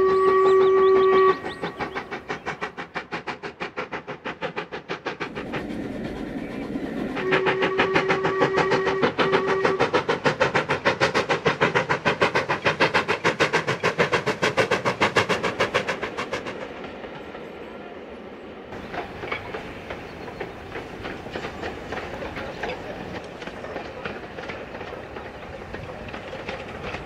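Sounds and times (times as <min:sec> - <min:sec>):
steam whistle: 0:00.0 - 0:02.0, 0:07.2 - 0:10.0
steam locomotive chuffing: 0:00.0 - 0:27.0.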